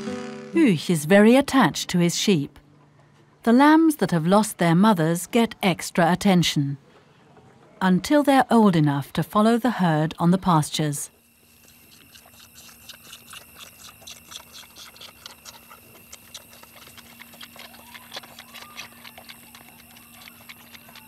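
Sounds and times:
faint steady hum: 0:09.7 - 0:21.0
lamb suckling wet smacking: 0:11.4 - 0:21.0.

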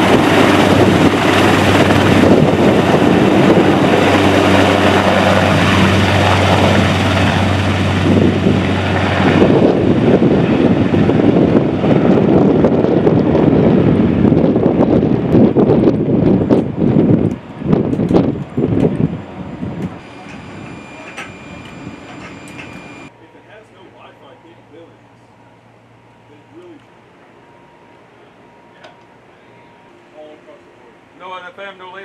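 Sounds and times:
helicopter flying past: 0:00.0 - 0:23.1
wind on microphone: 0:00.0 - 0:23.1
steady low hum: 0:00.0 - 0:32.0.

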